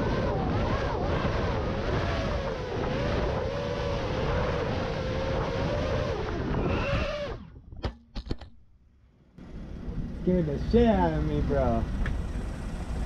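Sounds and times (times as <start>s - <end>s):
quadcopter motors whining: 0.0s - 7.5s
wind rushing over microphone: 0.0s - 7.9s.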